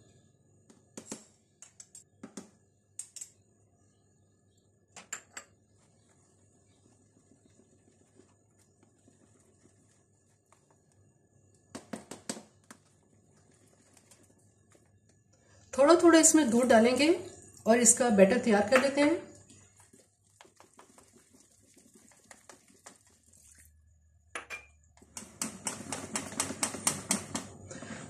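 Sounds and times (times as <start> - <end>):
whisk stirring batter: 5.8 - 10.9, 12.6 - 14.9, 19.4 - 23.6.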